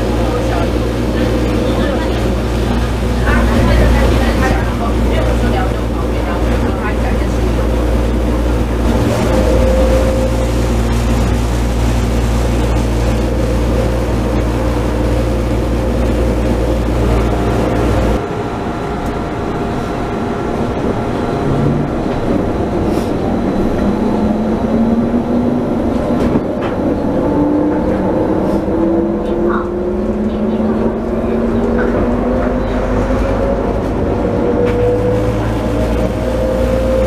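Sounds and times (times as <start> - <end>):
train motor whine: 0.0 - 26.8
train running rumble: 0.0 - 37.0.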